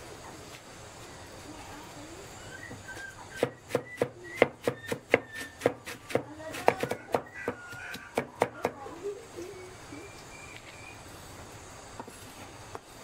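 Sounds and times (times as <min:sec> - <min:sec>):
cleaver chopping meat: 0:03.4 - 0:08.8.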